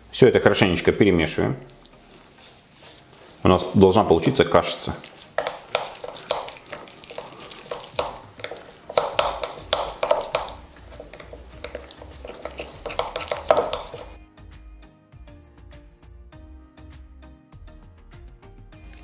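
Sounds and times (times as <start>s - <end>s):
metal utensil scraping glass bowl: 4.9s - 14.2s.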